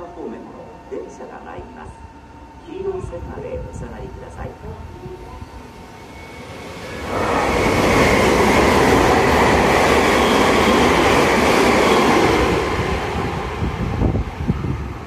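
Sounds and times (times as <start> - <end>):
train wheels rushing on rails: 5.1 - 15.0.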